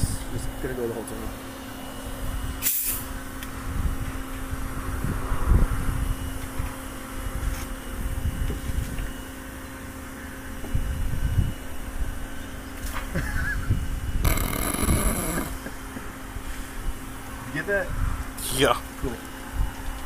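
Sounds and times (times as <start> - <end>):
low machine hum: 0.0 - 17.4
wind buffeting microphone: 3.6 - 6.4.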